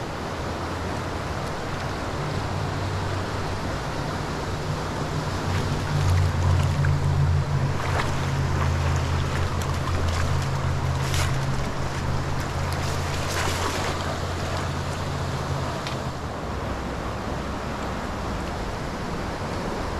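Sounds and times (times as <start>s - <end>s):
creek water rushing: 0.0s - 19.9s.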